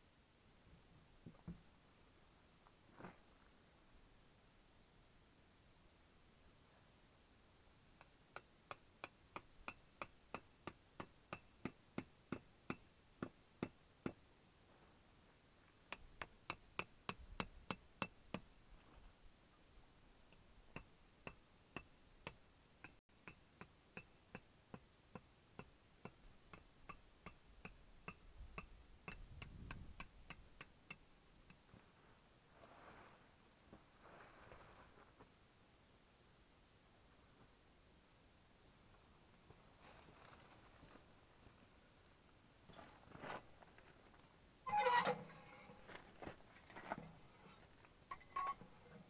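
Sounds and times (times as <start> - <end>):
soft handling rustle: 31.7 - 35.4, 39.4 - 41.7.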